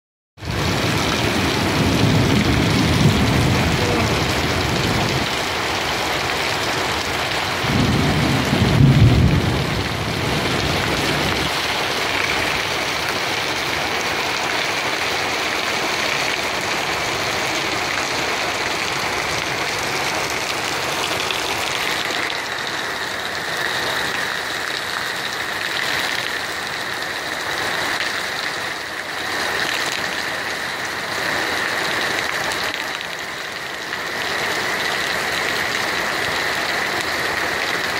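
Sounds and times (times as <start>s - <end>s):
heavy rain on pavement: 0.4s - 37.9s.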